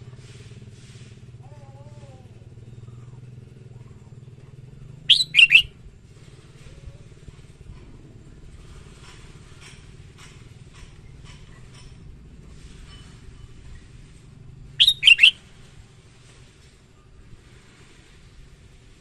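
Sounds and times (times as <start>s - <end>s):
faint bird chirps: 1.7s - 5.7s, 14.8s - 15.4s
bird song phrase: 5.1s - 5.7s, 14.8s - 15.3s.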